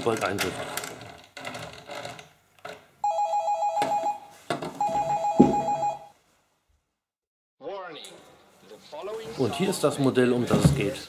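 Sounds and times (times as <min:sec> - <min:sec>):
electronic doorbell two-tone warble: 0:03.0 - 0:06.1.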